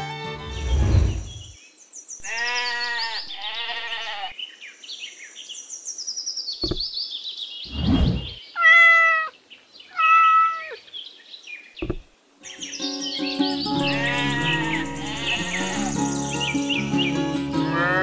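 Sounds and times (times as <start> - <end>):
sheep bleating: 2.2 - 4.4, 13.8 - 16.0, 17.6 - 18.0
cat meowing: 8.6 - 9.3, 9.9 - 10.8.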